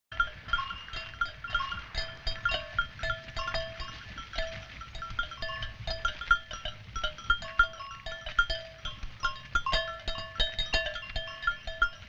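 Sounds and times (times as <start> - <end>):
livestock bells clinking: 0.1 - 12.0.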